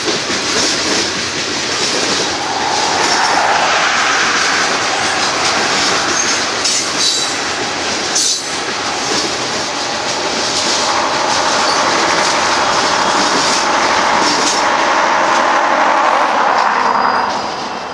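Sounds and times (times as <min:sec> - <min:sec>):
diesel locomotive engine drone: 0:00.0 - 0:17.9
train wheels clacking: 0:00.0 - 0:17.9
wheel squeal: 0:16.8 - 0:17.9.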